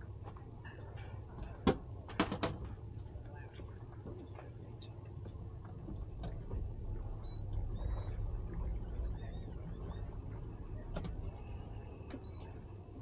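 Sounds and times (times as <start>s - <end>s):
boat engine idling: 2.7s - 13.0s.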